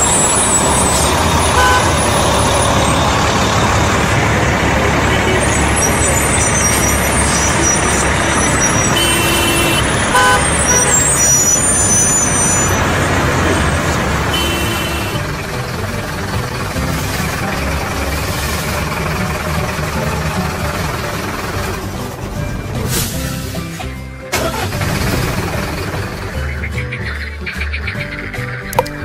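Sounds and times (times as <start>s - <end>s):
thin high squeals: 0.0s - 4.1s, 5.2s - 13.9s
road traffic: 0.0s - 29.0s
vehicle horn toots: 0.4s - 3.2s, 4.8s - 12.8s, 13.4s - 15.3s.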